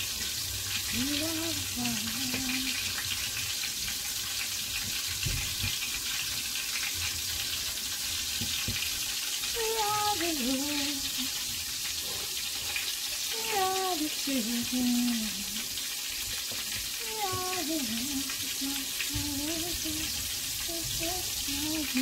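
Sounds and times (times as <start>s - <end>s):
chicken sizzling in hot oil: 0.0s - 22.0s
person singing: 0.9s - 2.8s, 9.6s - 11.3s, 13.3s - 15.6s, 17.0s - 22.0s.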